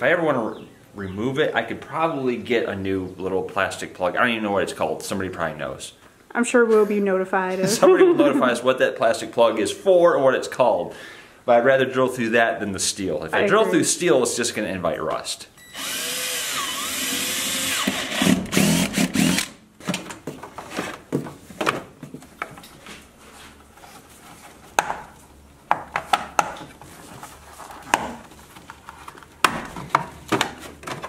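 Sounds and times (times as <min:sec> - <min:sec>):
cordless drill running: 0:15.6 - 0:19.6.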